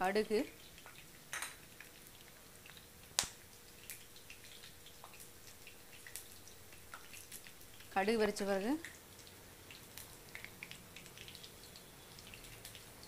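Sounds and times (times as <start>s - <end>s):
seeds sizzling and popping in oil: 0.0s - 13.0s.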